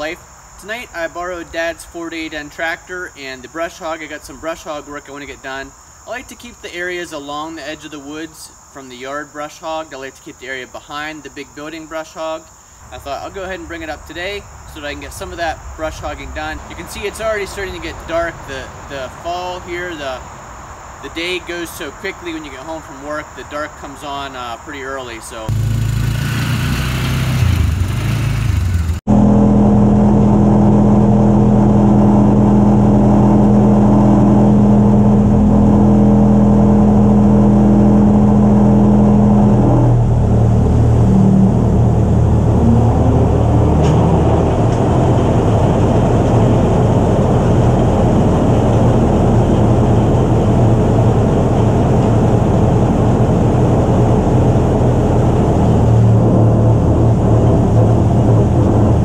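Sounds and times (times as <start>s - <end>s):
vehicle engine: 25.3s - 59.0s
tractor engine idling: 25.5s - 29.0s.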